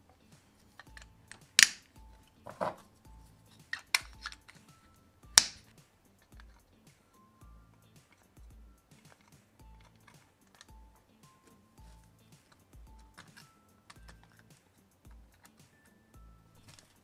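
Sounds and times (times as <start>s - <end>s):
soft background music: 0.0s - 17.0s
plastic parts clicking: 0.1s - 2.9s, 3.5s - 6.7s, 9.0s - 10.8s, 12.4s - 15.7s.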